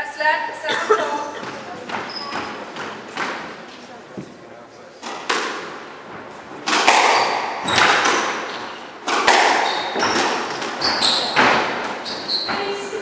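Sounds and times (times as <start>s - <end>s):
shoes squeaking on wooden floor: 1.0s - 13.0s
racket and ball cracks: 5.0s - 5.9s, 6.6s - 12.0s.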